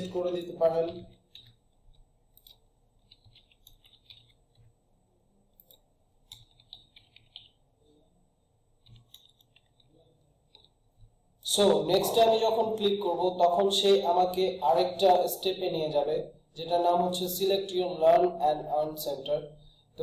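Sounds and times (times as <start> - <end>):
keyboard typing: 0.0 - 4.8, 5.4 - 7.8, 8.8 - 15.3
mouse clicks: 5.5 - 7.6.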